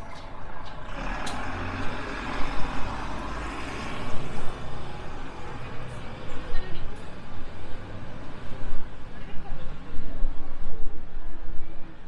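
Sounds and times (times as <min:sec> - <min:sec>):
street noise: 0:00.0 - 0:12.0
heavy vehicle passing: 0:00.3 - 0:09.9.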